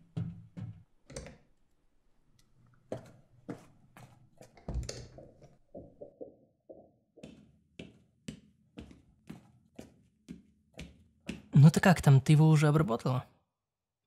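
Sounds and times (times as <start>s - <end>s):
footsteps: 2.9s - 11.6s.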